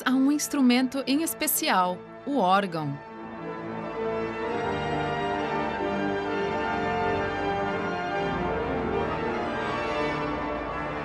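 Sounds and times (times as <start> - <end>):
pipe organ playing chords: 3.0 - 11.0.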